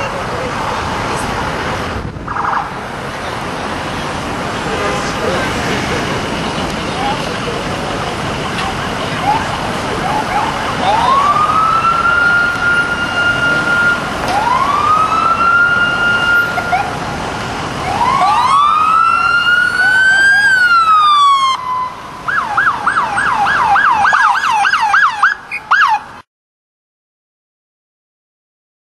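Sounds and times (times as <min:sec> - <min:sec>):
police siren wailing: 0:02.2 - 0:03.6, 0:08.8 - 0:26.1
siren fast yelp: 0:02.3 - 0:02.8, 0:09.2 - 0:16.9, 0:17.8 - 0:26.0.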